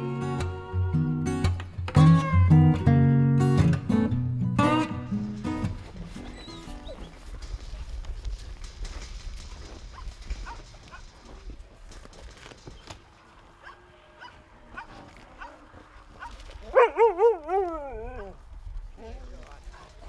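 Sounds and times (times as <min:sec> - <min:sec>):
dog whine-howling: 0:16.7 - 0:18.4.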